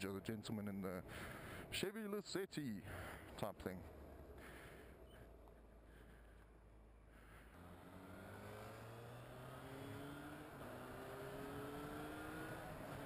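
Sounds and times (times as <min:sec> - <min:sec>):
motorcycle engine accelerating: 0:07.4 - 0:13.0.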